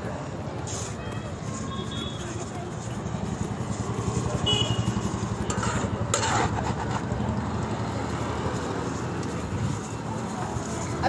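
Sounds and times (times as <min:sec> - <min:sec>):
road traffic: 0:00.0 - 0:11.0
metal scraper scraping a sieve-pan: 0:05.0 - 0:07.1.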